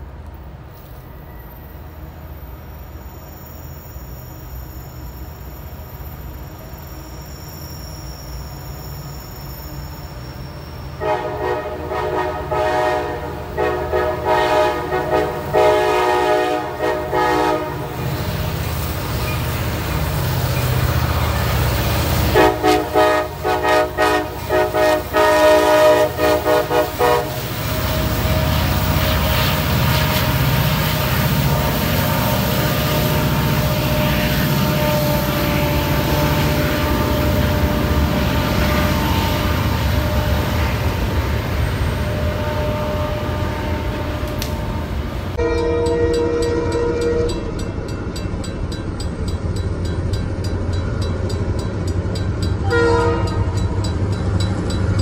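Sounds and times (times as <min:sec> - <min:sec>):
freight train rumbling by: 0:00.0 - 0:55.0
locomotive air horn blasts: 0:11.0 - 0:18.4, 0:22.2 - 0:47.4, 0:52.6 - 0:53.5.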